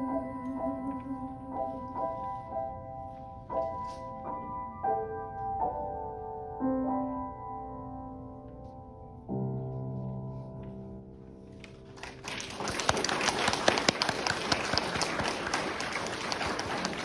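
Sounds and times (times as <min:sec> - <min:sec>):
audience applause: 0:12.0 - 0:17.0.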